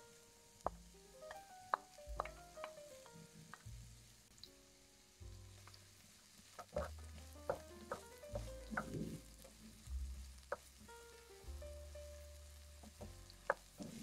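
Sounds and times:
soft background music: 0.0 - 14.0
onion frying in oil: 0.1 - 14.0
wooden spoon knocking pan: 0.7 - 2.8, 6.6 - 9.6.

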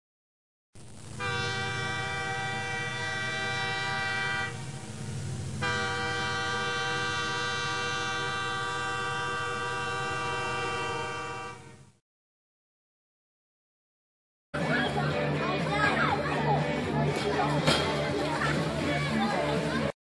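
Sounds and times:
train whistle blasts: 1.2 - 12.0
low rumble: 3.8 - 7.3.

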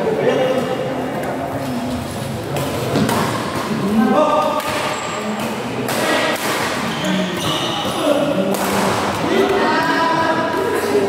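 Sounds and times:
racket hitting shuttlecock: 2.6 - 3.8, 4.4 - 9.5.

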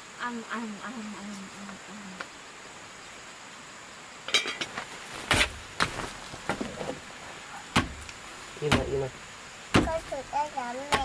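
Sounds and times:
dishes clinking: 4.3 - 4.8
sharp knocks: 5.3 - 6.7, 7.7 - 9.1, 9.7 - 10.1.

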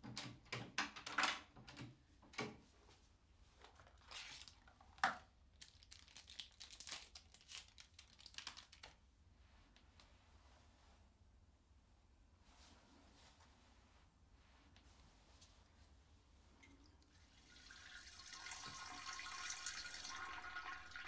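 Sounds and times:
packaging rustling and crinkling: 3.7 - 9.0.

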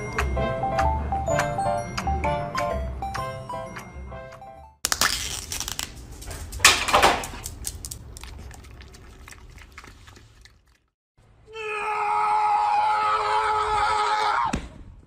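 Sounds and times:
music with bell-like notes: 0.0 - 4.8.

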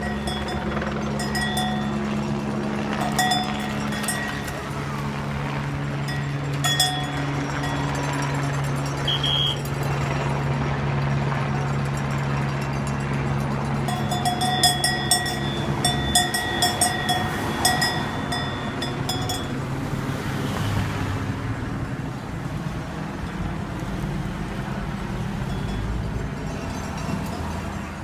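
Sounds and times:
cars driving slowly past: 0.0 - 28.0
cowbell strikes: 13.9 - 19.5.

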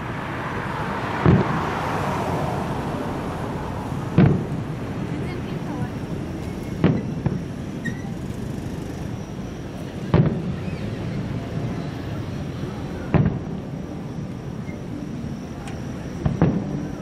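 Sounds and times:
steady background noise: 0.0 - 17.0
distant firework booms: 1.2 - 1.6, 4.1 - 4.6, 6.8 - 7.4, 10.1 - 10.5, 13.1 - 13.5.

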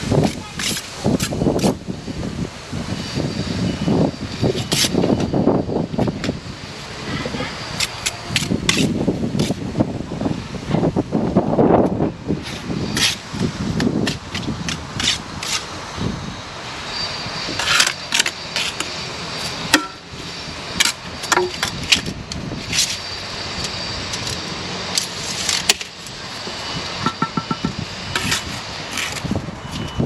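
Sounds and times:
trowel clinking and scraping bricks: 27.0 - 30.0.

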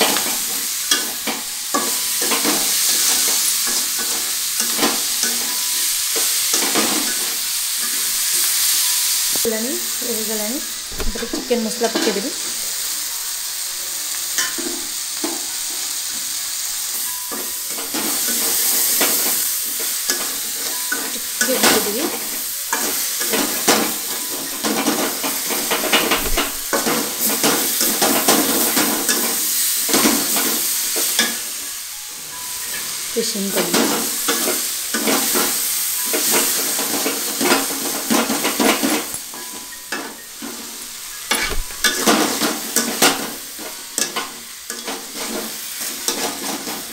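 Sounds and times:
vegetables sizzling in pan: 0.0 - 46.9
spatula scraping metal pan: 41.0 - 46.9.

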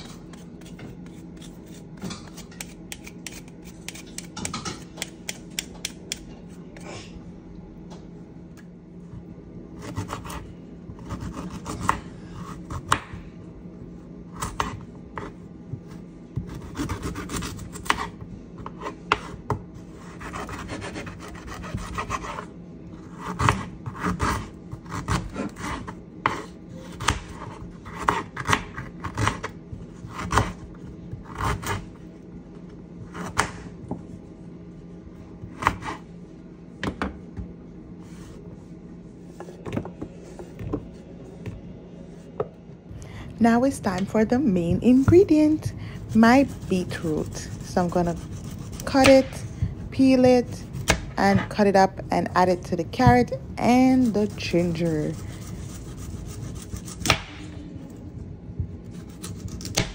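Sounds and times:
steady low hum: 0.0 - 59.9
peeler scraping ginger: 0.3 - 4.4, 46.0 - 49.2.

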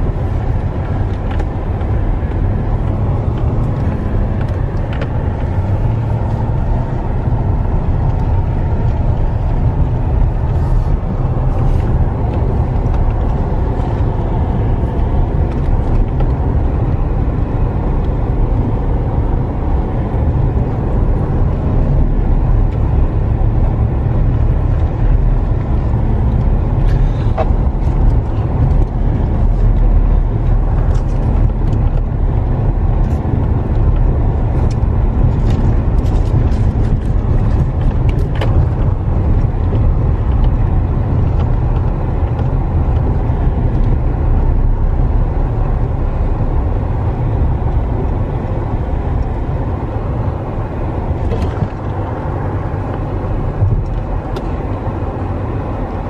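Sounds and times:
vehicle engine and tyres rumbling: 0.0 - 56.0
faint clicks and rattles: 24.4 - 44.4.

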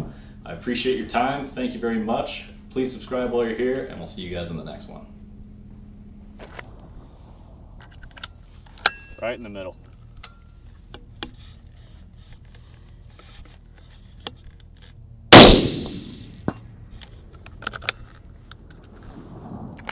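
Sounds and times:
rifle metallic clicks: 14.2 - 19.0
rifle shot with echo: 15.3 - 16.5.

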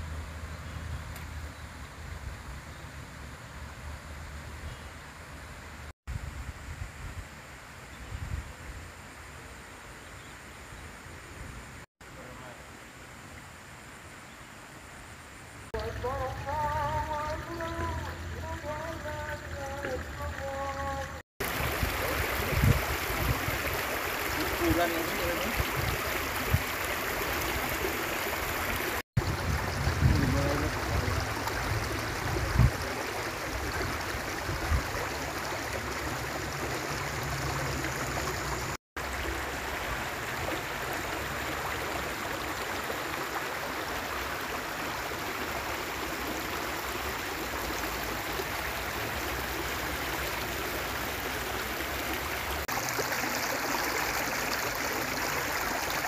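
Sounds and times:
water rushing in stream: 15.6 - 56.0.

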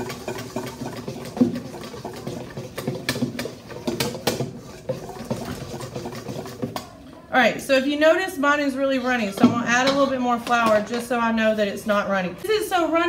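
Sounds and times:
whisk scraping metal bowl: 0.0 - 7.0, 8.7 - 12.0.

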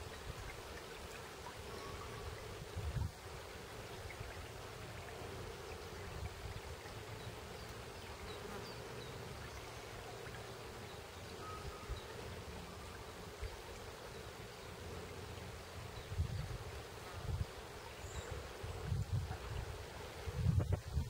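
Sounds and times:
stream flowing over stones: 0.0 - 21.0
faint bird chirps: 1.5 - 2.6, 7.2 - 13.3.

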